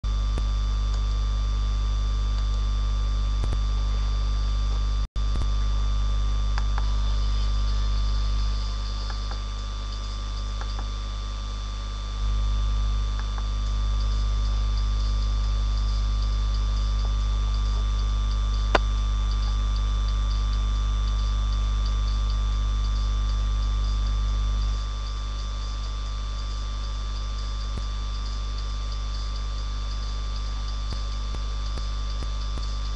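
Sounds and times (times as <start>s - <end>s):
electrical mains hum: 0.0s - 32.9s
sharp click: 13.2s - 13.5s.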